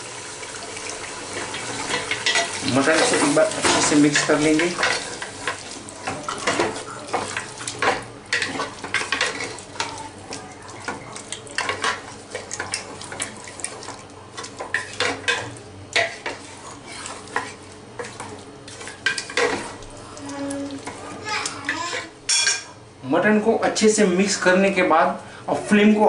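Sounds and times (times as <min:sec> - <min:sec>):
sizzling in hot oil: 0:00.0 - 0:22.6
wooden spatula scraping a pot: 0:01.4 - 0:21.2.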